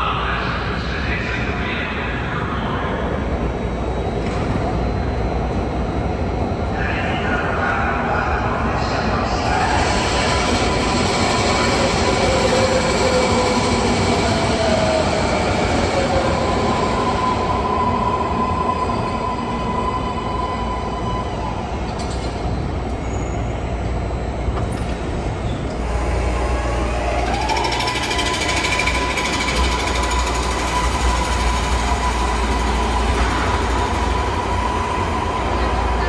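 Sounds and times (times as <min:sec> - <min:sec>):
train wheels rumbling: 0:09.0 - 0:36.0
train motor whine: 0:25.7 - 0:36.0.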